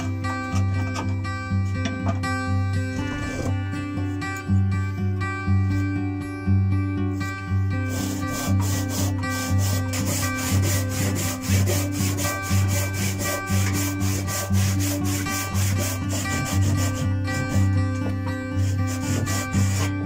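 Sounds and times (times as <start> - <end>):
acoustic guitar music: 0.0 - 20.0
handsaw cutting wood: 7.8 - 20.0.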